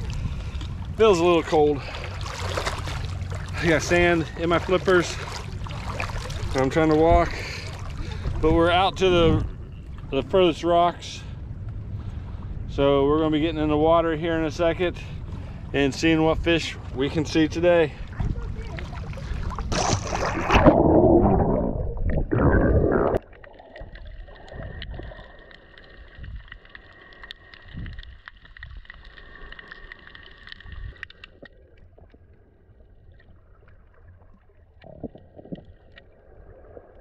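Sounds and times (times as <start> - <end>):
water splashing and rushing: 0.0 - 9.4, 15.9 - 37.0
faint underwater clicking: 23.1 - 32.3.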